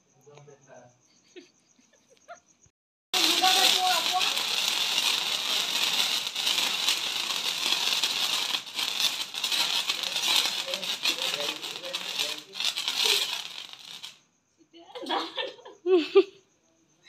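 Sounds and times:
sparklers fizzing and crackling: 3.1s - 14.2s
faint voices: 3.2s - 13.5s.

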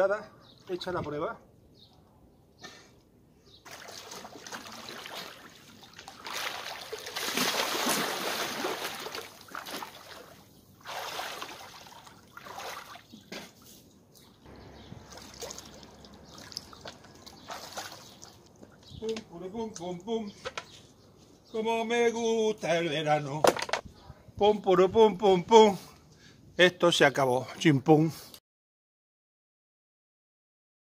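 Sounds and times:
pool water splashing: 3.6s - 18.8s.

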